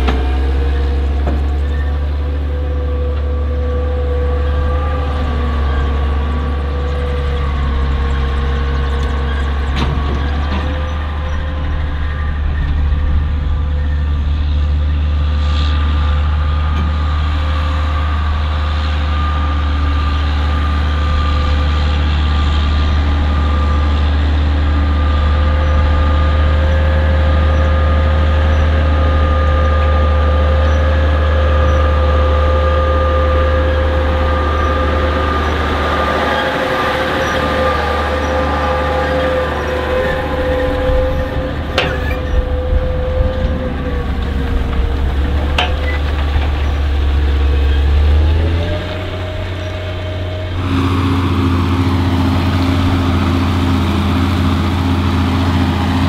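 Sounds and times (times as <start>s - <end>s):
diesel engine drone: 0.0s - 56.0s
steady engine whine: 0.0s - 56.0s.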